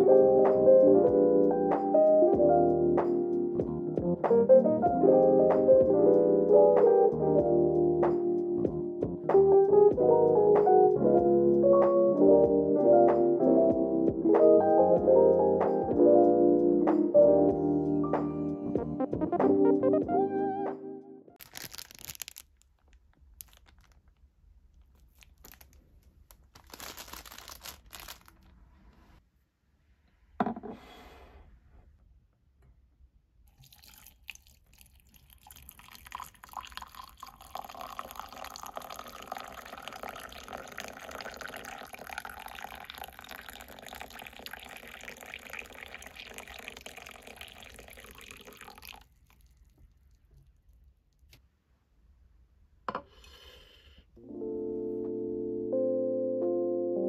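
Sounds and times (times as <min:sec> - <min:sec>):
water pouring into a mug: 0:33.5 - 0:49.7.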